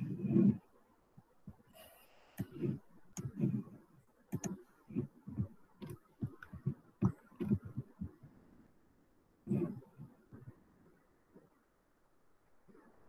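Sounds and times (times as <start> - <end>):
mouse wheel scrolling: 0.0 - 0.7, 1.4 - 8.2, 9.5 - 10.5
computer mouse clicking: 1.5 - 8.2, 9.5 - 9.8.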